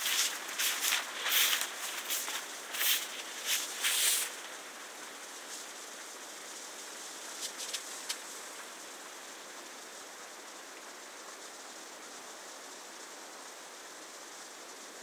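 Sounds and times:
footsteps through long grass: 0.0s - 4.6s
faint steady hiss: 0.0s - 15.0s
light ticks: 7.4s - 8.7s.

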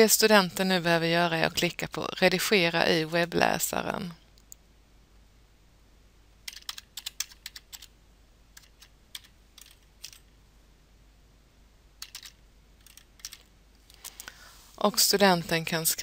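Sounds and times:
computer keyboard typing: 6.4s - 7.9s, 8.5s - 10.2s, 12.0s - 13.5s.

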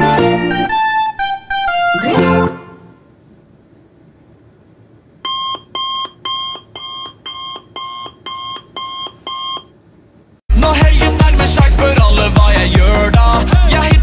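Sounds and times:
loud music: 0.0s - 3.0s, 10.5s - 14.0s
electronic alarm beeping: 5.2s - 9.7s.

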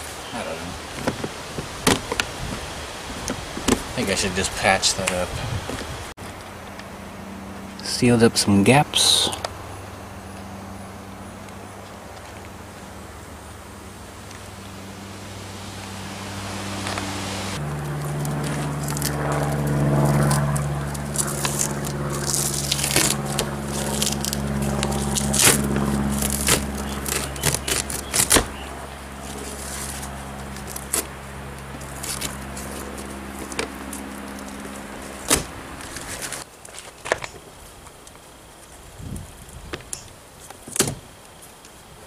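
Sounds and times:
low hum: 5.3s - 36.4s
duct tape being peeled and torn: 17.9s - 28.6s, 29.2s - 37.3s.

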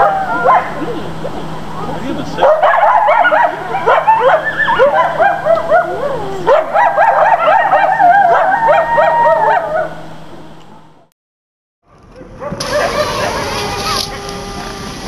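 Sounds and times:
coyotes yipping and howling: 0.0s - 0.8s, 1.9s - 10.0s, 12.4s - 15.0s.

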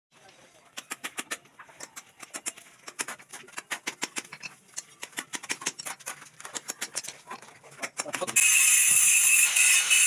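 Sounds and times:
rapid sharp clicks and taps: 0.7s - 8.4s.

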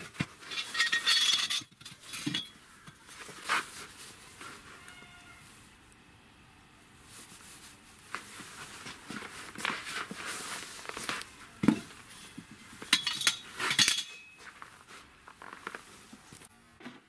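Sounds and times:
steel grip clinking on concrete: 12.9s - 14.4s.

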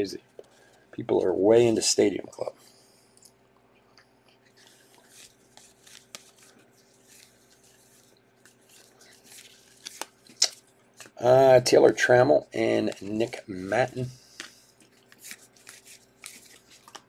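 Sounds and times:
faint steady hum: 0.0s - 17.0s
cards sliding and rustling: 4.5s - 11.2s, 12.8s - 17.0s.

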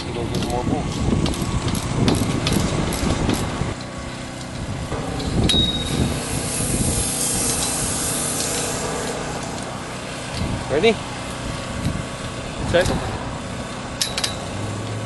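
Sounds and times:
sharp metallic click and ring: 5.0s - 10.5s, 14.0s - 14.5s.

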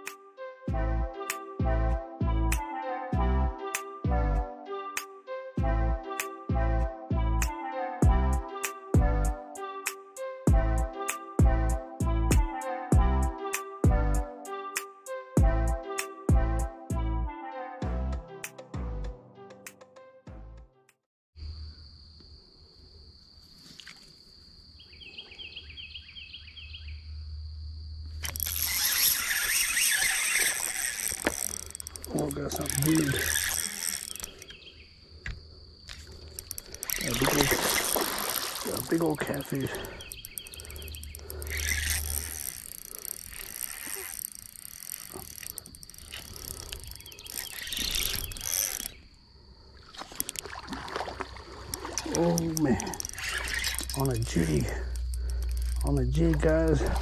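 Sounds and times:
bird-like chirps: 24.8s - 27.2s, 39.3s - 41.8s, 46.5s - 49.1s
fishing reel drag buzzing: 28.2s - 34.7s, 35.9s - 49.1s, 50.0s - 50.5s, 51.6s - 57.0s.

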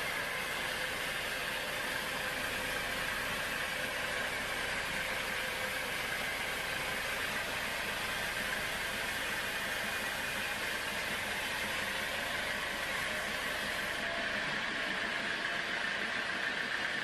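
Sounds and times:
sawmill drive running: 0.0s - 17.0s.

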